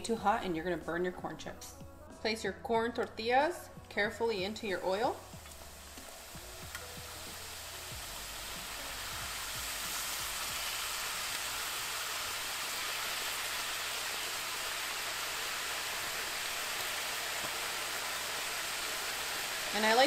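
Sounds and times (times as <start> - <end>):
tortilla pieces sizzling in oil: 4.8 - 20.0.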